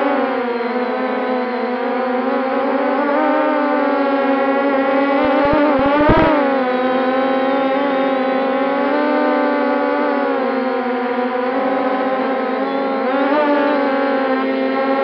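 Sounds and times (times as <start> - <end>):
drone motors humming: 5.0 - 6.7
low thumps: 5.2 - 6.3.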